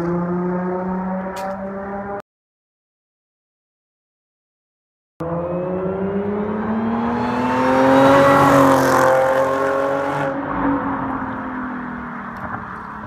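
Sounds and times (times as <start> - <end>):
car accelerating past: 5.2 - 11.8.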